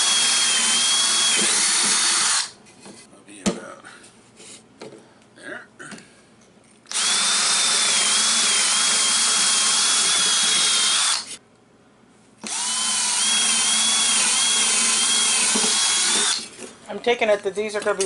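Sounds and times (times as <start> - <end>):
cordless drill boring wood: 0.0 - 2.5, 6.9 - 11.4, 12.4 - 16.5.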